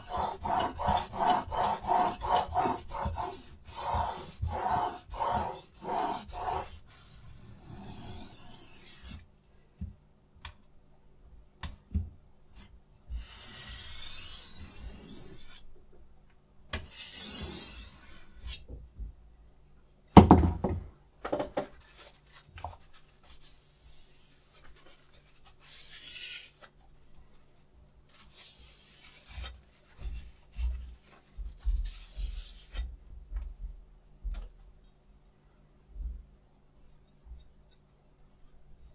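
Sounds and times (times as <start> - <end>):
loud knock: 20.2 - 21.7.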